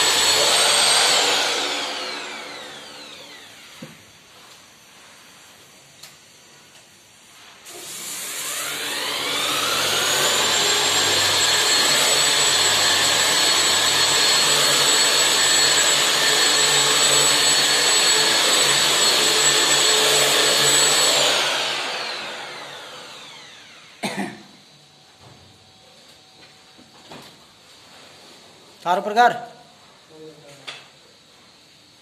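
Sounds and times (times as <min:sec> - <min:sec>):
drywall sander motor whine: 0:00.0 - 0:04.9, 0:07.7 - 0:24.0.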